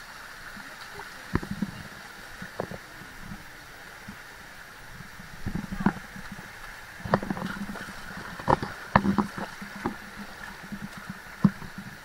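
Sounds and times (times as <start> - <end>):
stream water rushing: 0.0 - 12.0
sharp knocks and splashes: 5.4 - 12.0.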